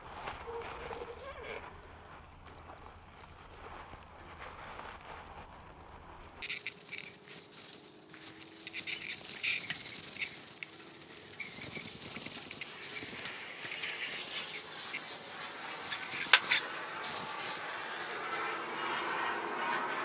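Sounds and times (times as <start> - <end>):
wrench clicking and rattling: 6.4 - 7.3, 8.4 - 15.1, 15.9 - 16.6.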